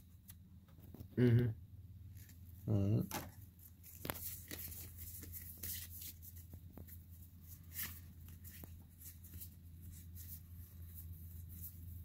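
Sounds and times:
low steady hum: 0:00.0 - 0:12.0
cards sliding and clicking: 0:03.1 - 0:06.9.

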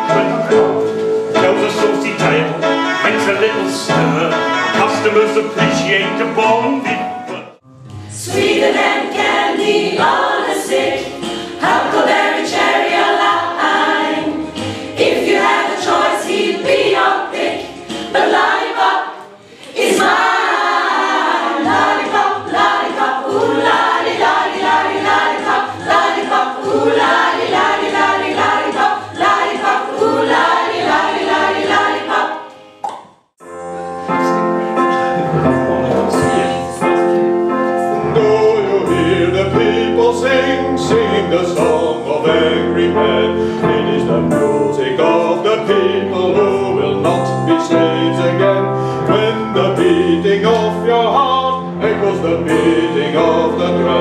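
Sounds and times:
group of people singing: 0:08.1 - 0:32.6, 0:35.7 - 0:37.1, 0:37.8 - 0:54.0.

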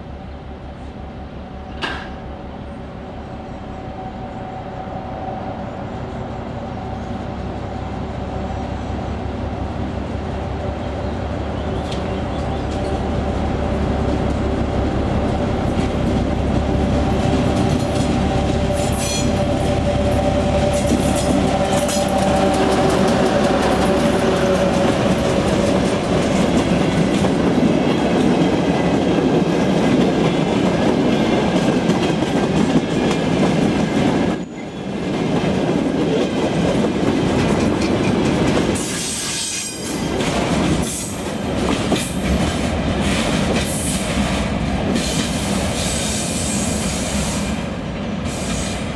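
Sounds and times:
diesel locomotive engine drone: 0:00.0 - 0:48.9
wheels clacking over rail joints: 0:15.2 - 0:34.4, 0:35.0 - 0:45.4.

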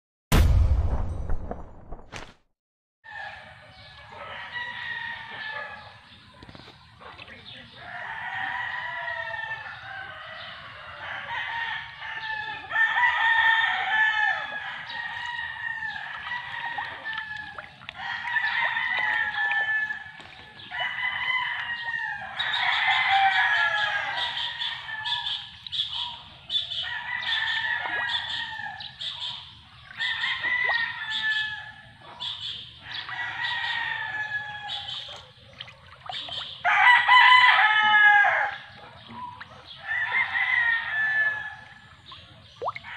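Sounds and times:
roosters crowing: 0:07.8 - 0:25.6, 0:26.6 - 0:29.0, 0:29.9 - 0:32.0, 0:32.8 - 0:35.2, 0:36.6 - 0:42.0.

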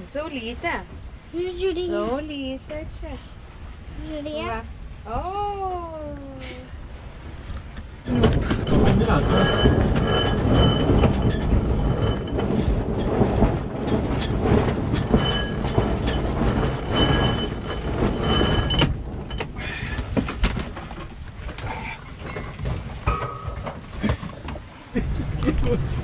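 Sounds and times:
thin steady squeal: 0:08.6 - 0:19.4.

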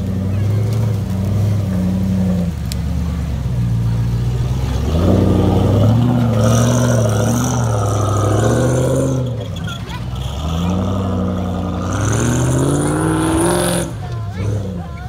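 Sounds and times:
engine revving hard: 0:04.3 - 0:15.0.

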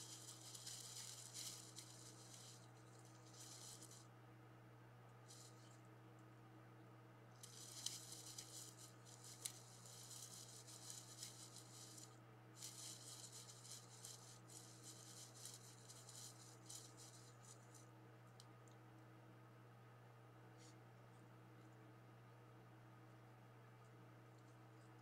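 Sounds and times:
rustling of dry leaves: 0:00.0 - 0:04.0, 0:07.4 - 0:17.6
low electrical hum: 0:00.0 - 0:25.0.

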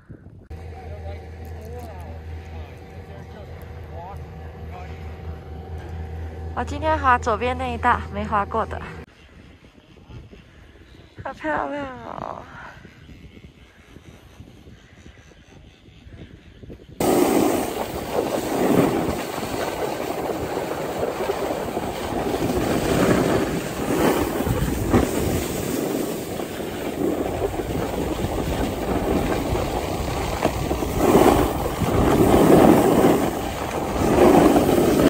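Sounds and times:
wind rushing over microphone: 0:02.6 - 0:35.0
sliding on packed snow: 0:17.0 - 0:35.0.

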